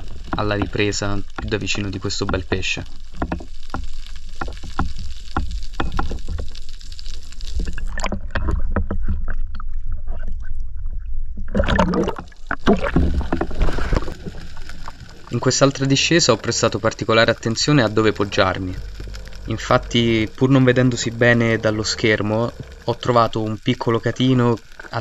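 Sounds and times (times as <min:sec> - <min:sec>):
deep rumble: 0:00.0 - 0:25.0
seawater sloshing and splashing: 0:11.5 - 0:15.4.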